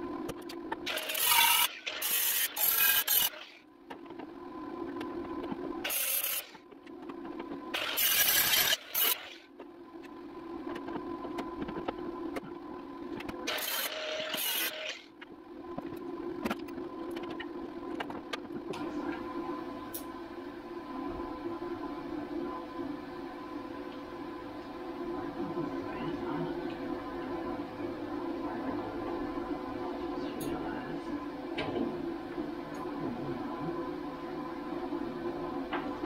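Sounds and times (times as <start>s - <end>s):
steady hum: 0.0s - 36.0s
power grinder on sheet metal: 0.9s - 3.5s, 13.5s - 15.0s.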